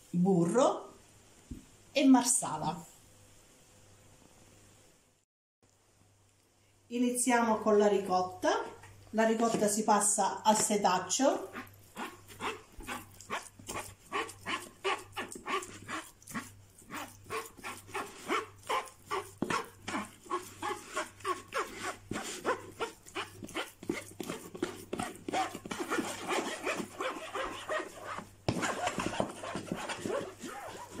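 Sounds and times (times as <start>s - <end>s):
spoon scraping mesh sieve: 10.5s - 31.0s.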